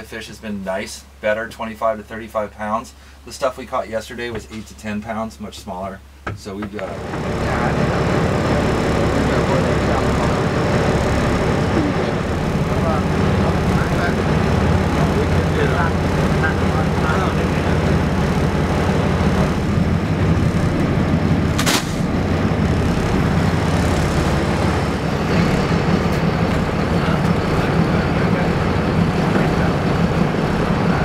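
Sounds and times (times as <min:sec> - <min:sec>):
boat engine droning: 0:06.7 - 0:31.0
sharp knock: 0:21.5 - 0:22.1.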